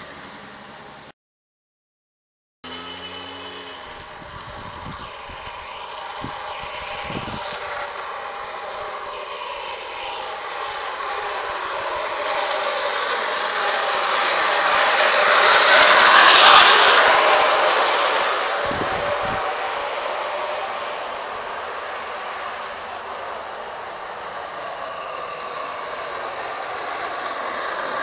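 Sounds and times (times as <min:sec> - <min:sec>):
cart wheels rumbling on asphalt: 0:03.8 - 0:28.0.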